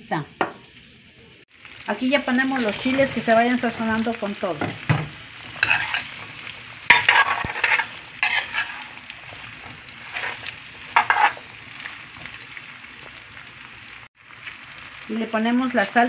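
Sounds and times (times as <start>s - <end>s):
vegetables sizzling in a pan: 0.0s - 16.0s
spatula scraping and stirring: 5.5s - 12.4s.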